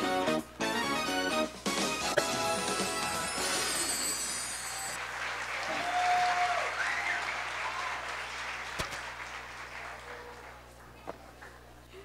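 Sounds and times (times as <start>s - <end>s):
audience applauding: 4.6s - 11.6s.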